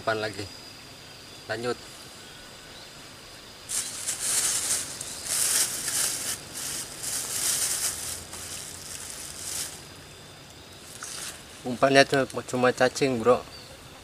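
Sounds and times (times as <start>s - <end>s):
rustling and scuffling in grass: 3.7s - 10.1s, 10.7s - 12.0s.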